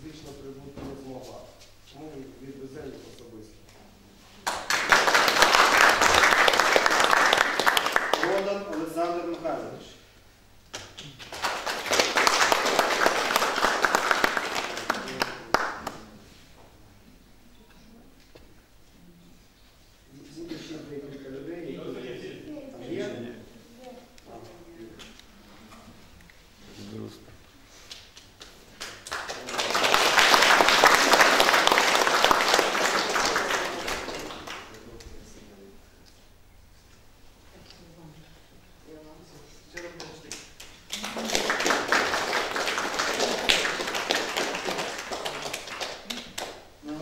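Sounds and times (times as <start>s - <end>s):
people applauding: 4.4s - 9.2s, 10.8s - 16.1s, 28.4s - 35.1s, 39.8s - 47.0s.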